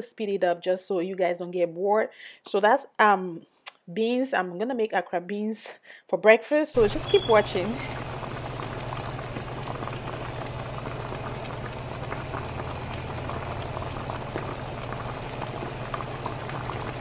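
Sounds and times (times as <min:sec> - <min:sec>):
sauce bubbling and popping: 0:06.8 - 0:17.0.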